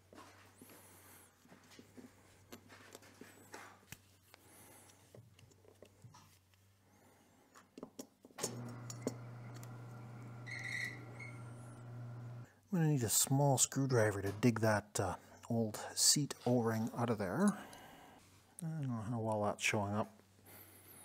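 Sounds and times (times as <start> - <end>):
steady low hum: 8.5 - 12.5.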